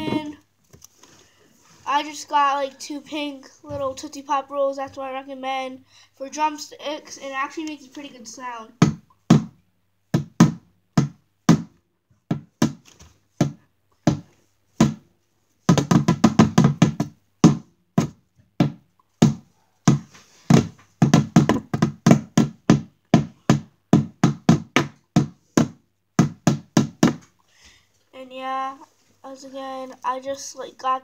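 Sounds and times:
lollipops drumming on trash bin: 8.8s - 15.0s, 15.6s - 27.3s.

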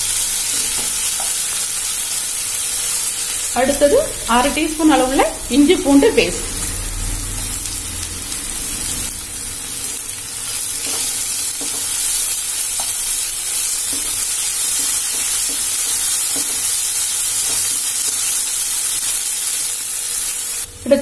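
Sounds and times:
vegetables sizzling in oil: 0.0s - 21.0s
spatula stirring and scraping: 10.8s - 16.8s.

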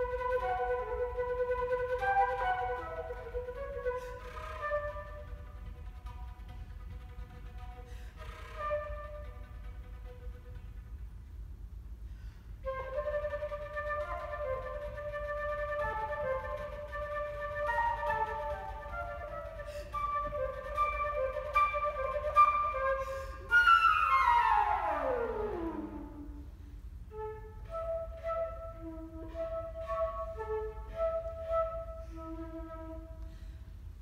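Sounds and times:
flute playing: 0.0s - 10.9s, 12.6s - 33.6s.

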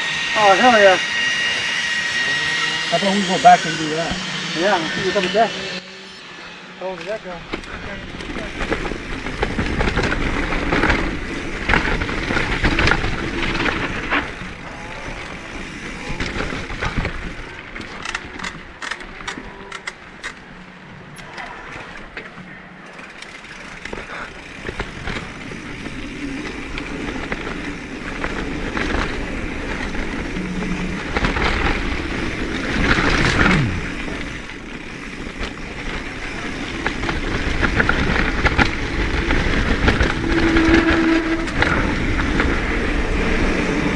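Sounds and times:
bike tyre noise: 0.0s - 43.9s
bike rattles and clicks: 6.8s - 43.9s
wind noise: 24.1s - 43.9s.

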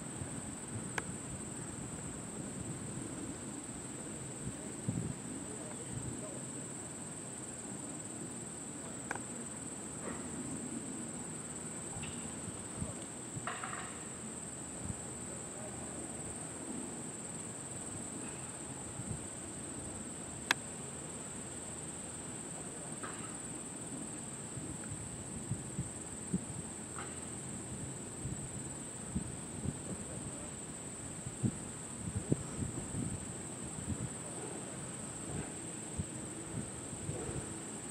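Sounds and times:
high-pitched insect chorus: 0.0s - 37.9s
faint clicks: 20.4s - 20.6s.

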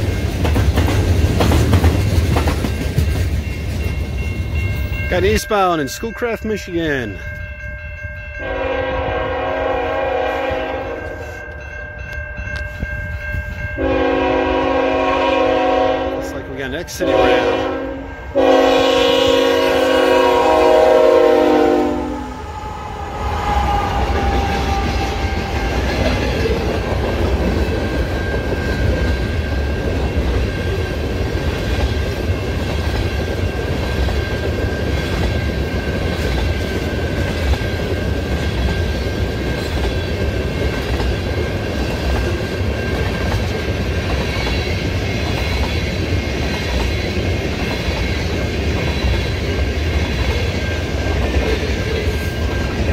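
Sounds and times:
train rumbling past: 0.0s - 52.9s
locomotive horn: 8.4s - 11.2s, 13.8s - 16.4s, 17.0s - 25.3s.

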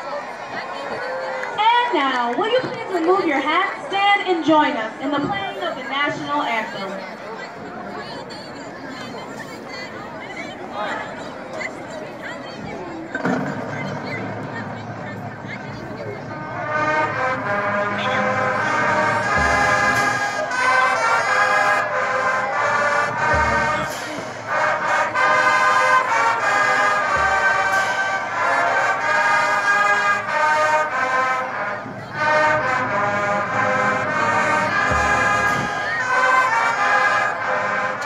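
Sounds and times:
marching band playing: 0.1s - 38.0s.

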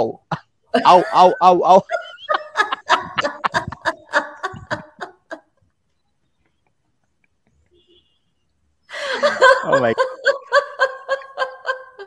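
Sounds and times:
person laughing: 0.3s - 5.5s, 9.0s - 12.0s.

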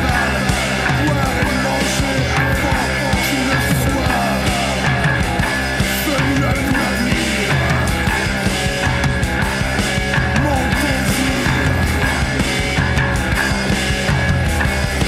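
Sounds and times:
distorted rock music: 0.0s - 15.0s.

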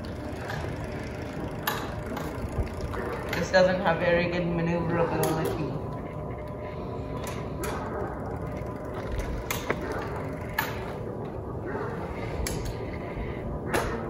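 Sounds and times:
electric go-kart motor whine and rattle: 0.0s - 4.0s, 4.9s - 11.6s.

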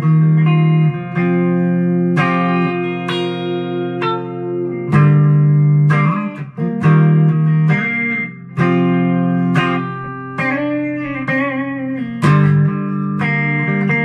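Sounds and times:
electric guitar chords ringing: 0.0s - 14.0s.

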